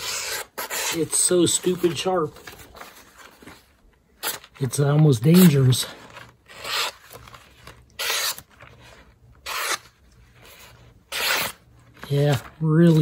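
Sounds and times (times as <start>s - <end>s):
knife slicing paper: 0.0s - 2.0s, 8.0s - 8.6s, 9.4s - 9.9s, 10.5s - 13.0s.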